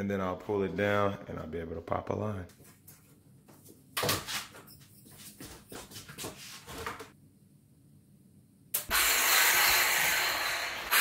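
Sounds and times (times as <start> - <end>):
circular saw cutting wood: 8.9 - 11.0.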